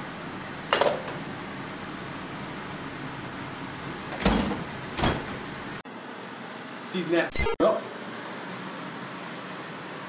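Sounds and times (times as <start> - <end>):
refrigerator hum: 0.0 - 10.0
items knocking in refrigerator: 4.1 - 5.5.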